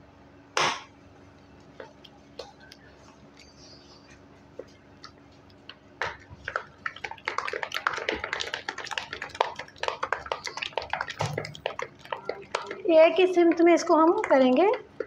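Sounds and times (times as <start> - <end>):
ghee beaten in metal bowl: 6.2 - 15.0.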